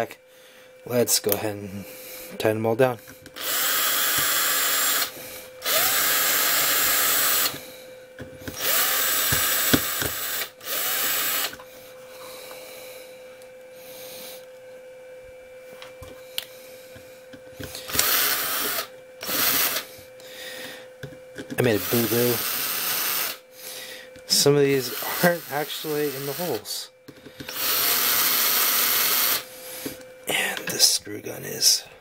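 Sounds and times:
electric screw gun driving screws: 3.4s - 7.6s, 8.4s - 11.6s, 17.6s - 19.9s, 21.6s - 23.4s, 24.3s - 26.8s, 27.4s - 29.5s.

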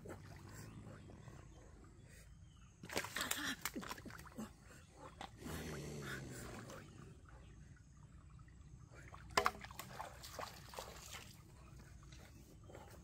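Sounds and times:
splashing in shallow water: 0.0s - 1.0s, 2.8s - 7.1s, 8.9s - 13.0s
low drawn-out growl: 4.4s - 7.8s
crocodile hissing: 5.4s - 6.9s.

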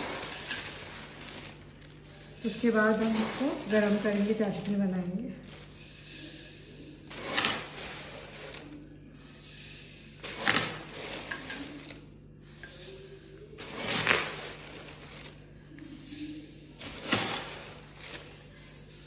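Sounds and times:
plastic bag crinkling: 0.0s - 6.0s, 7.1s - 8.9s, 13.6s - 15.5s
sugar pouring into a pot: 0.0s - 8.8s, 9.4s - 15.4s
sugar scraping in a bowl: 0.0s - 15.4s.

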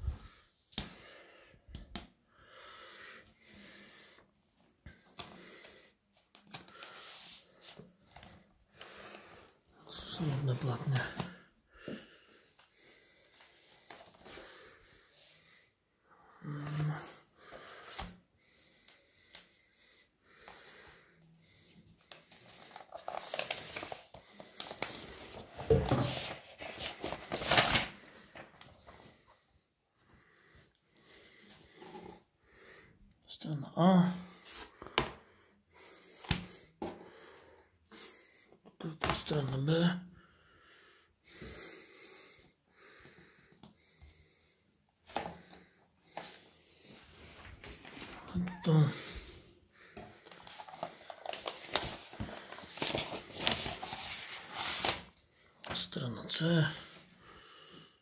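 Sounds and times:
faint breathing: 0.0s - 9.8s, 11.2s - 25.5s, 28.0s - 33.2s, 34.2s - 38.6s, 40.1s - 54.2s, 56.9s - 58.0s
record sleeve rustling: 22.0s - 28.6s, 49.9s - 55.8s.

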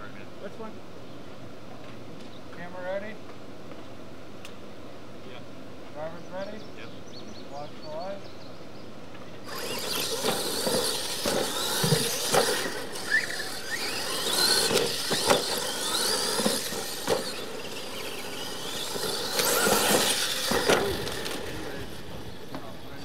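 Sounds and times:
electric motors whining: 9.4s - 23.0s
toy trucks landing knocks: 9.5s - 22.6s.

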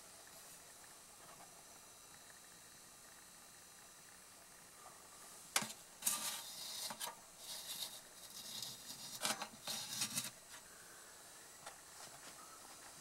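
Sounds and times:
rubbing and scraping handling noise: 5.6s - 10.7s, 11.9s - 13.0s.

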